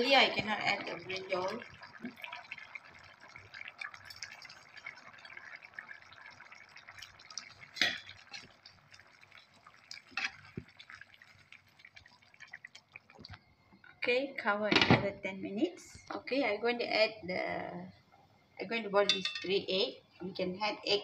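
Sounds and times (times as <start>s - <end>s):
clunks and splashes in a pan: 0.0s - 13.4s, 14.7s - 15.1s
curry bubbling in a pan: 0.0s - 13.7s.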